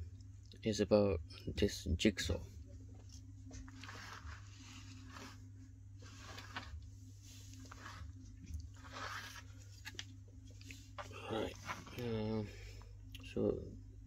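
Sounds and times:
rustling and scraping of power tool: 3.6s - 10.0s.

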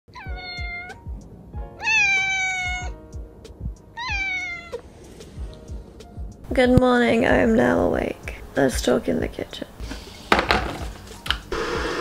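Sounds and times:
kitten meowing: 0.1s - 1.0s, 1.8s - 3.0s, 4.0s - 4.8s.

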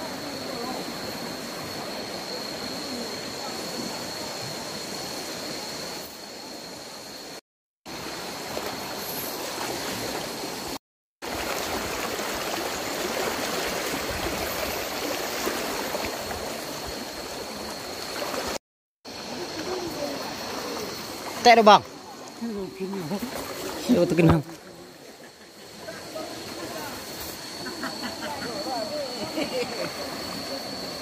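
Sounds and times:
river rushing over its bed: 7.9s - 25.0s.

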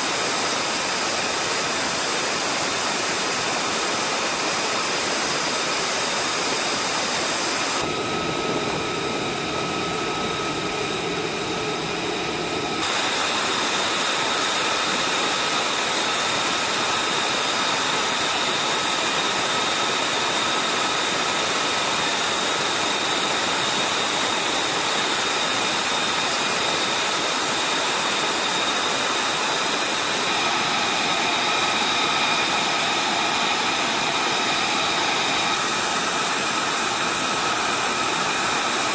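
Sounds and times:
jet engine idling: 0.0s - 38.9s.

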